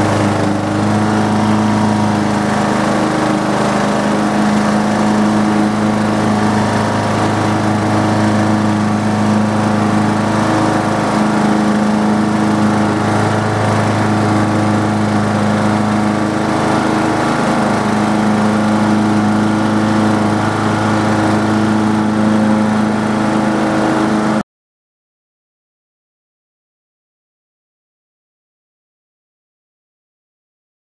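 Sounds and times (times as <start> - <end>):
riding lawn mower engine running: 0.0 - 24.4.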